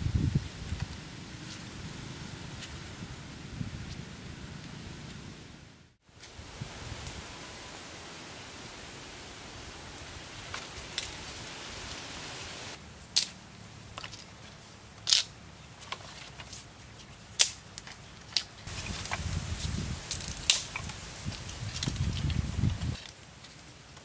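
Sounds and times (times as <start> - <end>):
wood fire crackling: 17.3 - 24.0.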